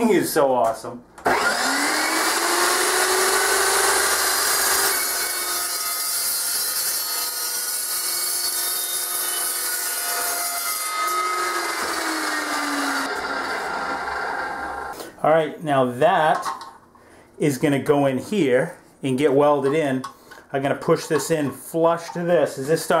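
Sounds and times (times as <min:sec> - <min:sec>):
chop saw cutting steel tube: 0:01.3 - 0:15.0.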